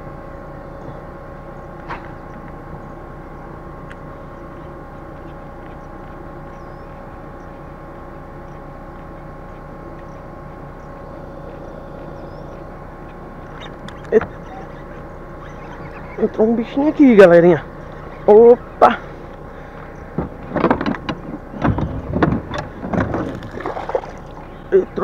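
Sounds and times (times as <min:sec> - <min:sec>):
distant motor humming: 0:00.0 - 0:25.0
high bird chirps: 0:04.3 - 0:07.6, 0:09.4 - 0:16.7.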